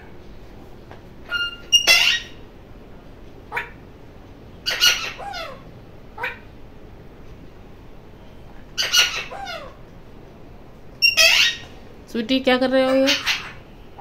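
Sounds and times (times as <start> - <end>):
parakeet squawking: 1.2 - 2.4, 3.5 - 3.8, 4.6 - 6.6, 8.7 - 9.8, 11.0 - 11.8, 12.8 - 14.0.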